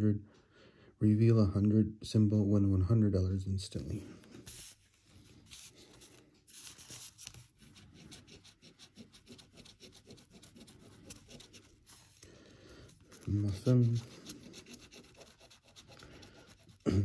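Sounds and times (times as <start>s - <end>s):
coin scratching lottery ticket: 8.1s - 12.0s, 13.2s - 16.8s.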